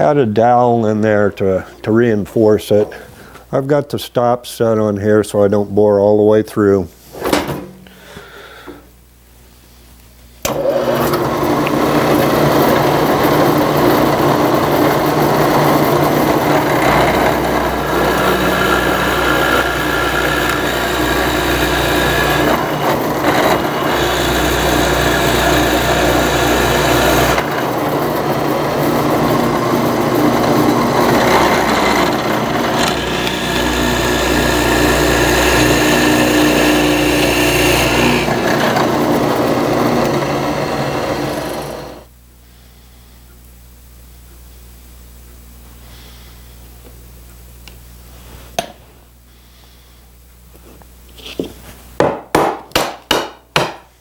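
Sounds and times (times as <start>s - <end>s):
drill press boring wood: 10.4s - 42.1s.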